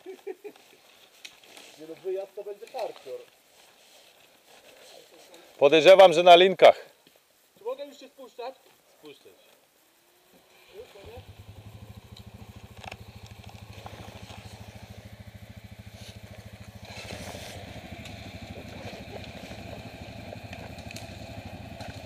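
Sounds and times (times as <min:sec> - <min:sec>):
quad bike engine throbbing: 0:10.4 - 0:22.0.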